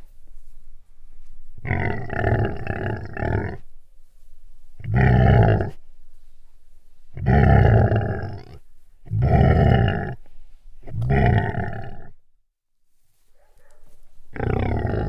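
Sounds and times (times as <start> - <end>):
big cat calling: 1.6 - 3.7, 4.8 - 5.8, 7.1 - 12.2, 14.3 - 15.0.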